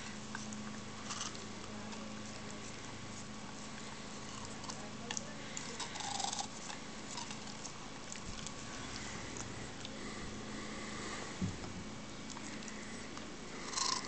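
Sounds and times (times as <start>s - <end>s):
dog slurping: 0.0s - 10.7s
steady low hum: 0.0s - 14.0s.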